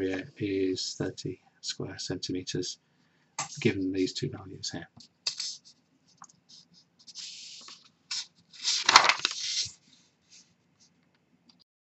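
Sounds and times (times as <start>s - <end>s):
paper sliding on desk: 7.1s - 10.4s.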